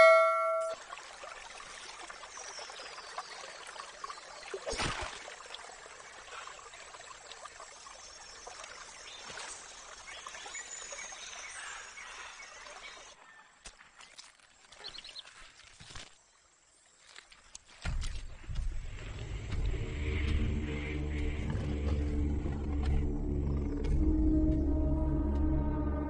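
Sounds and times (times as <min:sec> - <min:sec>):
faint high chirps: 0:00.0 - 0:00.8
river water flowing: 0:00.0 - 0:23.1
spear splashing into water: 0:04.6 - 0:05.4.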